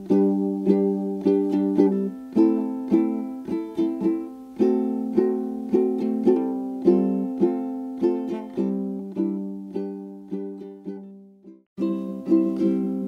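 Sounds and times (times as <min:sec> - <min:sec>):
plucked string instrument: 0:00.0 - 0:13.0.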